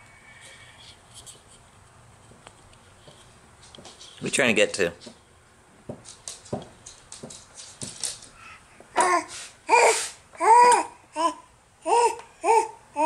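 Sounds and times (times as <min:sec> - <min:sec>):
baby babbling: 0:08.9 - 0:13.0.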